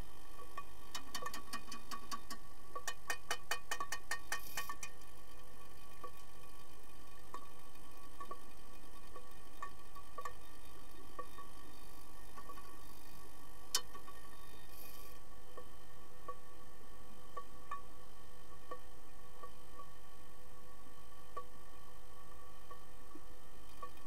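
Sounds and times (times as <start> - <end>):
steady underwater hum: 0.0 - 24.0
hockey sticks clicking underwater: 0.5 - 5.1, 9.1 - 10.4.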